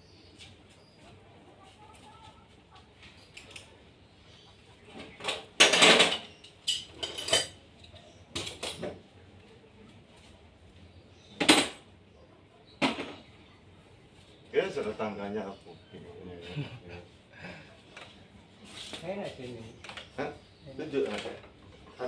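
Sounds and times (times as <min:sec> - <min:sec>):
metal objects clattering: 0:05.2 - 0:08.9.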